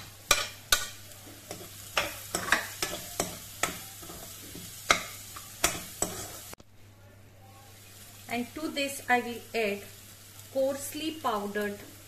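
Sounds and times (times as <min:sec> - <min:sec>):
spatula scraping and knocking pan: 0:00.0 - 0:06.5
frying sizzle in oil: 0:00.0 - 0:06.6, 0:07.6 - 0:12.0.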